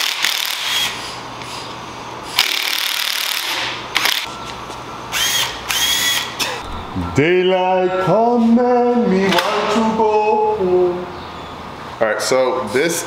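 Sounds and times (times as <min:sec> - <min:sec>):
cordless power tool whirring: 0:00.0 - 0:01.0, 0:05.1 - 0:06.6.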